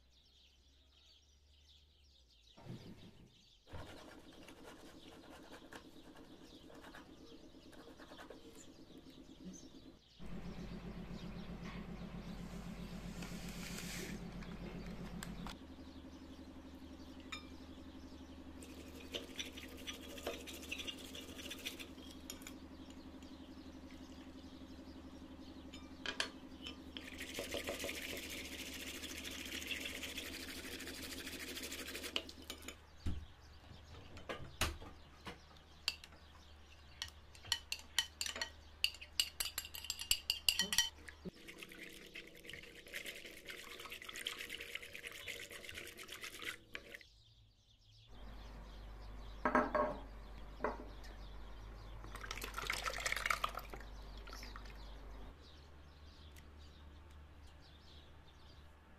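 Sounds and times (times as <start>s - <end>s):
battery whisk whirring: 18.6s - 22.6s, 27.0s - 32.6s
whisk tapping against glass: 37.4s - 41.0s.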